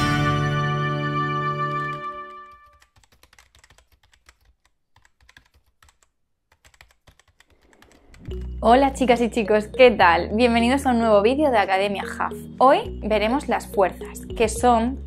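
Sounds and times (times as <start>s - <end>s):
intro music held notes: 0.0s - 2.7s
computer keyboard typing: 2.4s - 9.6s.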